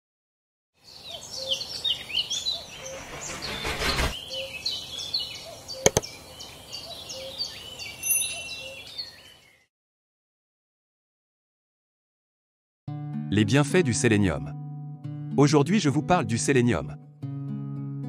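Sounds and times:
birds chirping and singing: 0:00.8 - 0:09.7.

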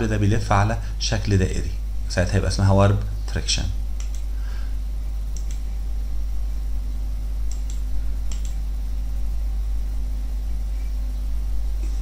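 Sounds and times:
low electrical hum: 0:00.0 - 0:12.0
soft mouse clicks: 0:04.0 - 0:04.3, 0:05.3 - 0:05.7, 0:07.4 - 0:08.6.

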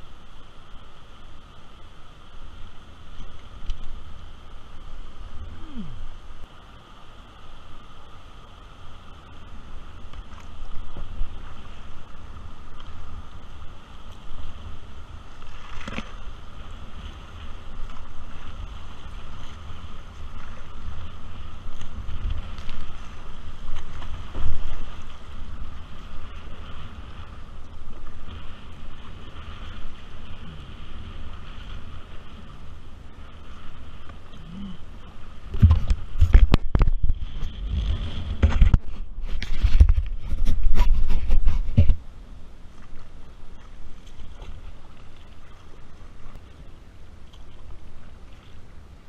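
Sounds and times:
kayak paddle splashes: 0:00.0 - 0:49.0
shallow river over stones: 0:00.0 - 0:49.0
wind buffeting microphone: 0:34.6 - 0:42.0.

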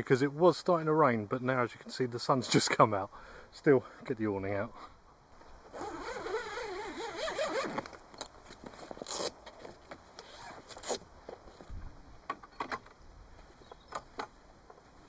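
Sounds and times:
zip rasping open: 0:05.7 - 0:07.9, 0:09.0 - 0:09.4, 0:10.2 - 0:11.0.

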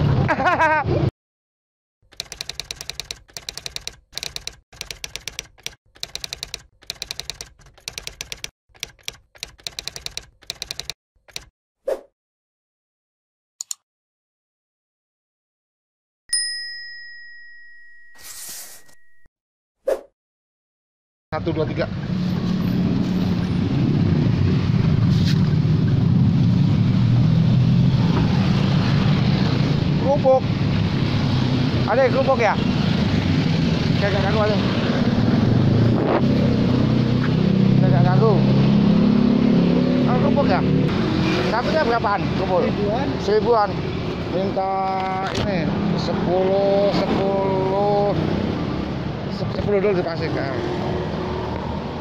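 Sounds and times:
typewriter key clicks: 0:02.1 - 0:11.5
idling and passing car engines: 0:21.4 - 0:52.0.

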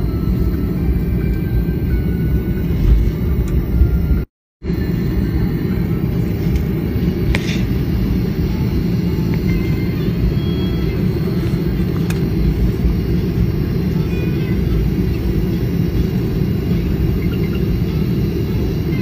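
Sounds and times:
jet airliner cabin rumble: 0:00.0 - 0:19.0.

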